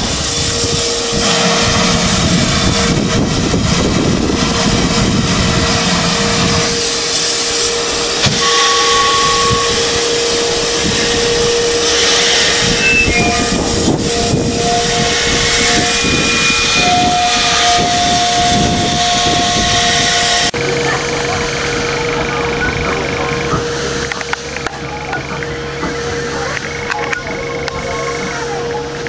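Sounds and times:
steam locomotive hissing: 0:00.0 - 0:29.0
steady whistling tone: 0:06.5 - 0:20.5.

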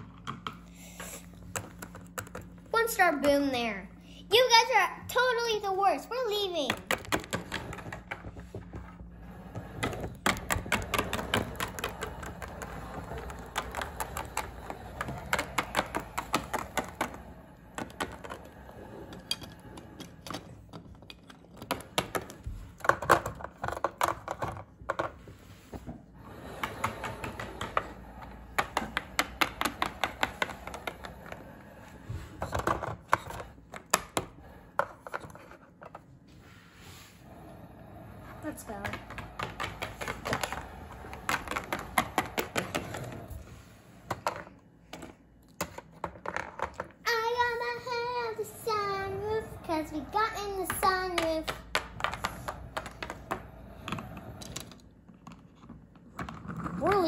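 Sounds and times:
plastic toys tapping on wood: 0:06.6 - 0:08.9, 0:09.8 - 0:25.1, 0:26.4 - 0:31.4, 0:32.4 - 0:36.0, 0:38.7 - 0:43.1, 0:44.1 - 0:47.1, 0:50.5 - 0:57.0.

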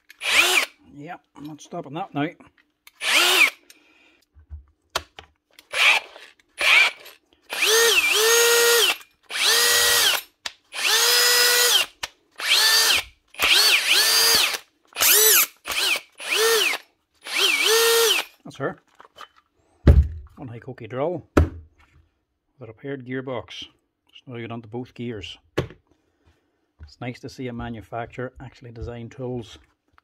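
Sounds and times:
cordless drill motor whine: 0:00.2 - 0:00.7, 0:03.0 - 0:03.6, 0:05.7 - 0:10.2, 0:10.8 - 0:18.3.

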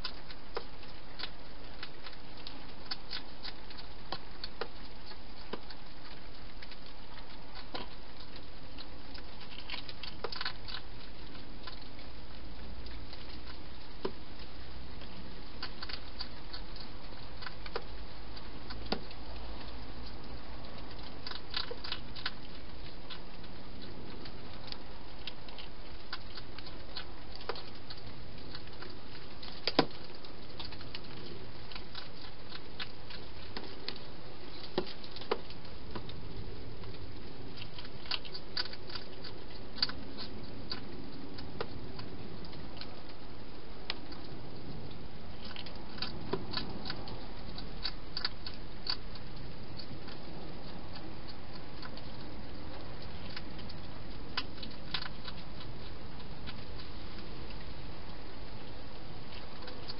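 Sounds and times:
hedgehog eating clicks and crunches: 0:00.0 - 0:59.9.

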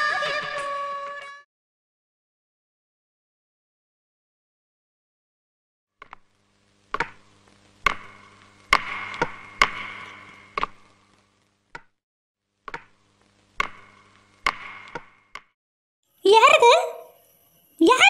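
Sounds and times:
faint steady hum: 0:06.0 - 0:11.8, 0:12.5 - 0:15.5
walking stick knocking on tiles: 0:06.9 - 0:07.2, 0:07.8 - 0:10.8, 0:12.6 - 0:13.0, 0:13.6 - 0:15.5.

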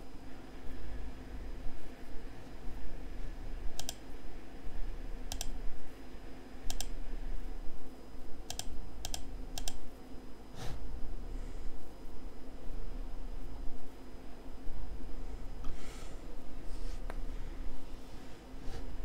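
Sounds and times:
steady low hum: 0:00.0 - 0:19.0
computer clicks: 0:03.7 - 0:04.1, 0:05.2 - 0:05.6, 0:06.6 - 0:07.0, 0:08.4 - 0:09.8.

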